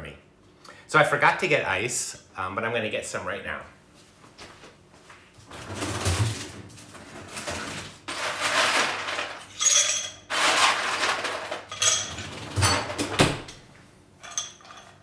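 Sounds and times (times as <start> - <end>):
ice rattling: 7.3 - 12.2.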